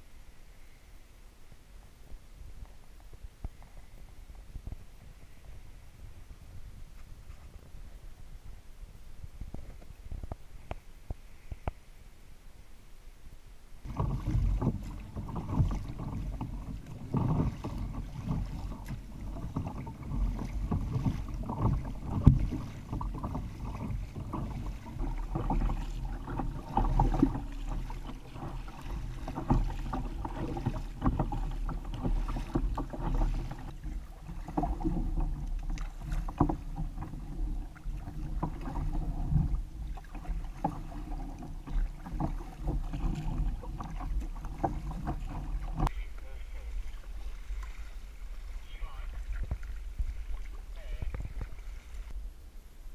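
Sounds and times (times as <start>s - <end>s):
low wind rumble on microphone: 0.0s - 52.9s
water slapping hull: 13.8s - 52.2s
paddle splashes: 13.8s - 52.3s.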